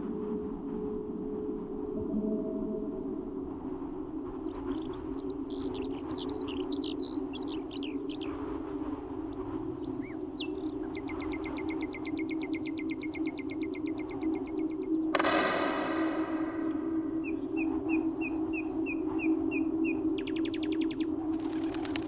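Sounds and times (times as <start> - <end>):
low drone from wind-driven strings: 0.0 - 10.9, 11.8 - 21.3
songbirds chirping: 4.3 - 15.1, 15.7 - 22.0.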